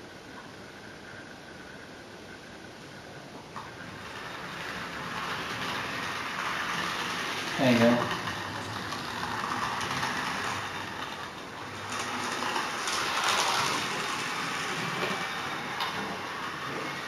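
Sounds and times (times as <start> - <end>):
model train wheels clattering: 3.6 - 17.0.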